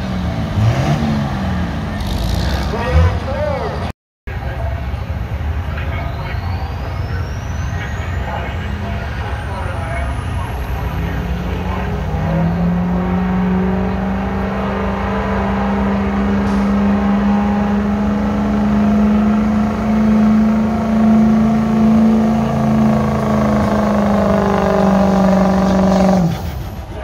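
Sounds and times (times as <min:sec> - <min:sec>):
diesel engine droning at high revs: 0:00.0 - 0:27.0.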